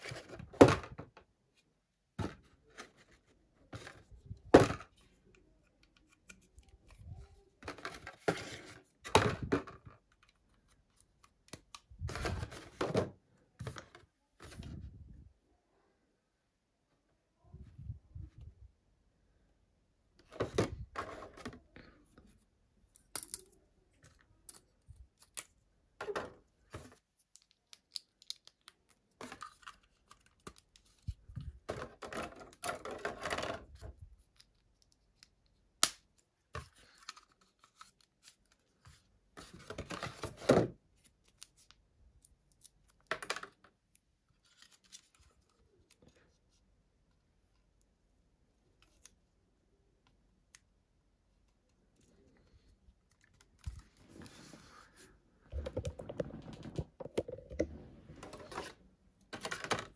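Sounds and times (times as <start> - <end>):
plastic parts scraping and rustling: 0.0 - 1.2, 2.2 - 15.0, 20.2 - 22.4, 26.0 - 35.4, 36.5 - 41.7, 51.9 - 59.9.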